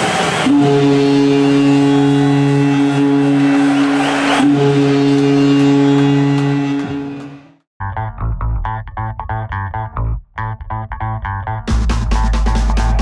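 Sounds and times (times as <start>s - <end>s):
goal horn blasts: 0.4s - 7.6s
crowd noise: 2.8s - 7.4s.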